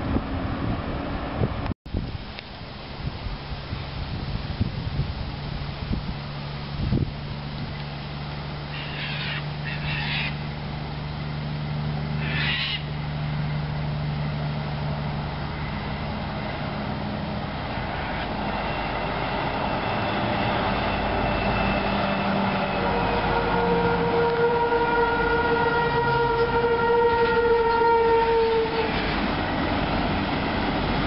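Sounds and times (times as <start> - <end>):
truck diesel engine drone: 2.5 - 31.0
harsh bird calls: 8.7 - 10.4, 12.2 - 12.9.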